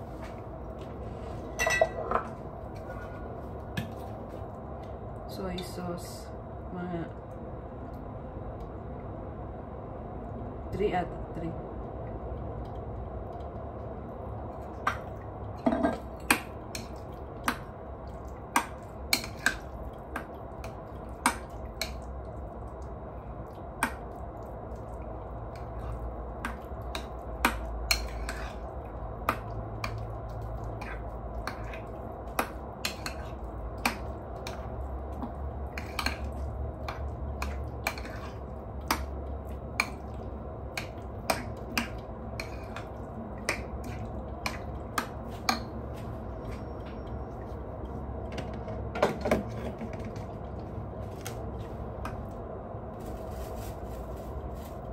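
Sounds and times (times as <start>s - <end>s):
utensil clinking against a bowl: 25.7s - 28.7s.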